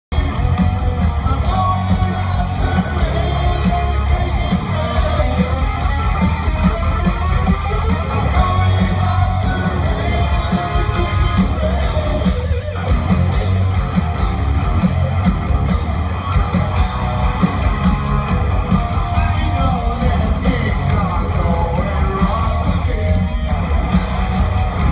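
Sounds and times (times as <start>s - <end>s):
drums on a steady beat: 0.1s - 24.9s
electric guitars: 0.1s - 24.9s
person singing: 1.2s - 6.0s, 7.8s - 12.6s, 18.9s - 23.5s.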